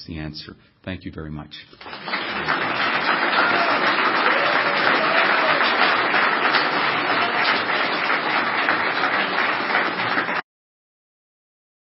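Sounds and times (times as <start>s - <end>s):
audience applauding: 1.8s - 10.4s.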